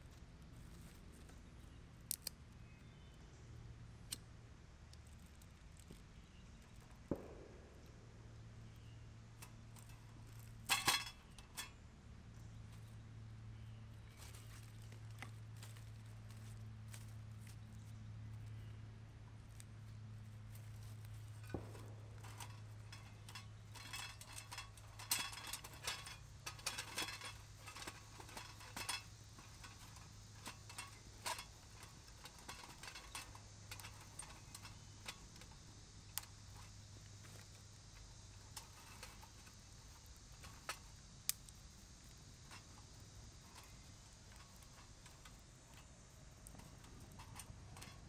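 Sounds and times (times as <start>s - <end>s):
twigs scraping metal stove: 0.0s - 3.1s, 4.9s - 48.0s
fire crackling: 3.9s - 10.8s, 19.2s - 48.0s.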